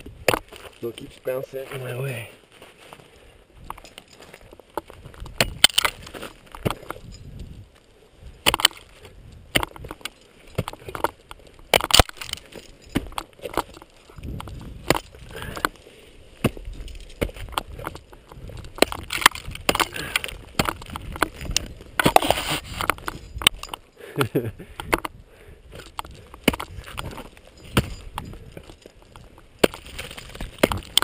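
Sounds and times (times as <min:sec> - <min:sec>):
ice axe striking ice: 0:00.2 - 0:00.8, 0:05.2 - 0:07.1, 0:08.4 - 0:15.8, 0:16.4 - 0:25.1, 0:25.7 - 0:31.0.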